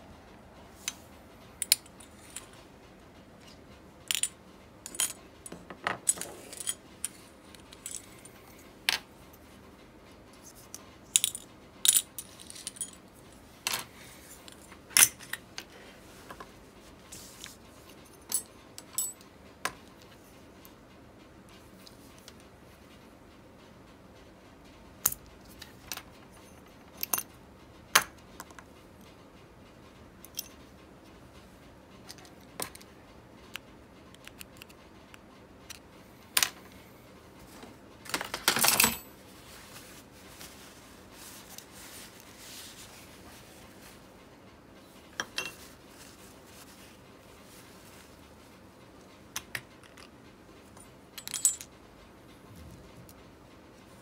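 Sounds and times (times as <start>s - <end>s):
small metal parts clinking: 4.1s - 5.2s, 5.8s - 8.2s, 51.2s - 51.7s.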